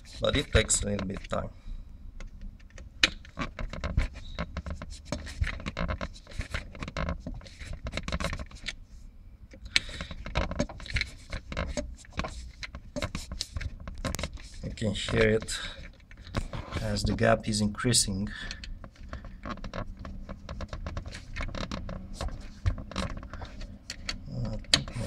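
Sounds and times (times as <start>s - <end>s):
metallic clicking and scraping: 18.2s - 25.0s.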